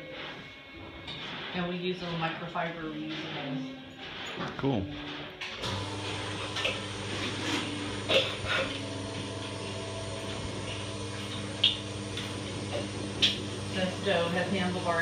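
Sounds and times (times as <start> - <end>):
milking machine humming: 3.0 - 15.0.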